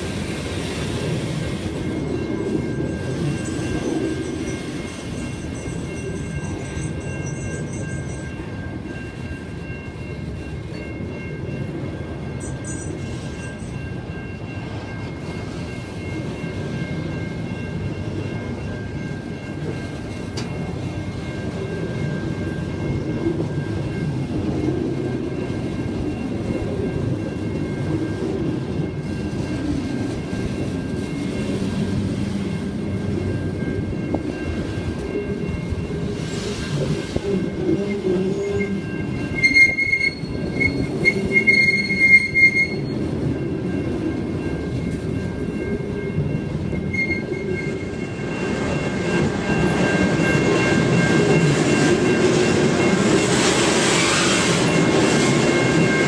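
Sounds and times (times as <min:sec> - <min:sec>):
wagon wheels rumbling on rail: 0:00.0 - 0:56.0
wheels squealing: 0:37.9 - 0:43.0, 0:46.8 - 0:48.0.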